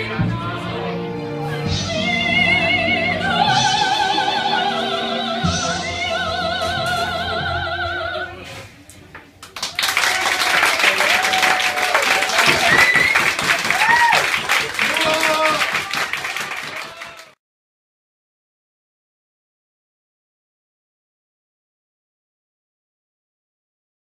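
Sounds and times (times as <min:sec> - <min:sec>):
musical accompaniment: 0:00.0 - 0:08.6
audience applause: 0:09.4 - 0:17.4.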